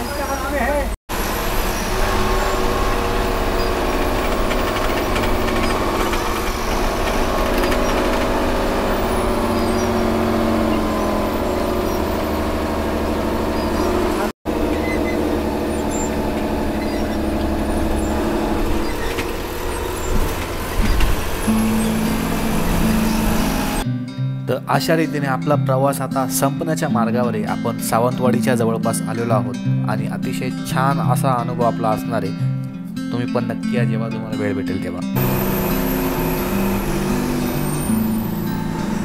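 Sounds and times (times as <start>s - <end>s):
bus engine running: 0.0s - 23.8s, 35.2s - 39.0s
road noise: 0.0s - 23.8s, 35.2s - 39.0s.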